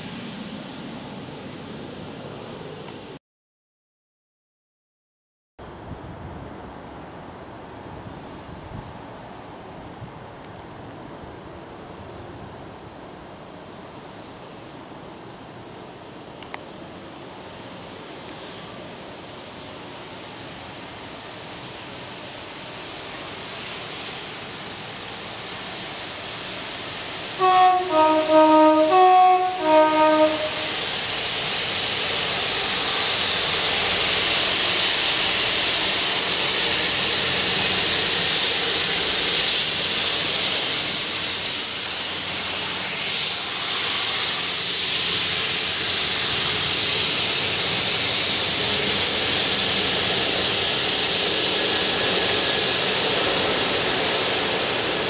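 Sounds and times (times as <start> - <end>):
diesel locomotives passing: 0.0 - 3.2, 5.7 - 55.0
locomotive two-tone horn: 27.4 - 30.8.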